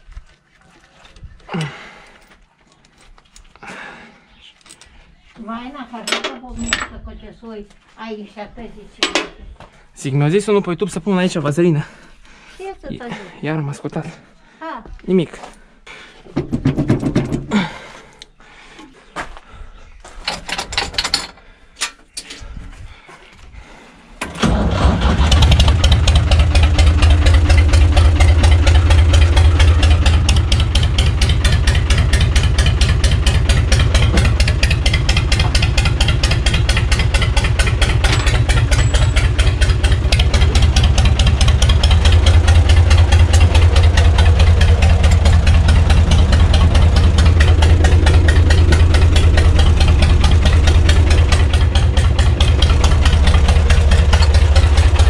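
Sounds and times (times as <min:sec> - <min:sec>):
metallic knocks and clicks: 0:20.3 - 0:22.3
tractor diesel engine running: 0:24.2 - 0:55.0.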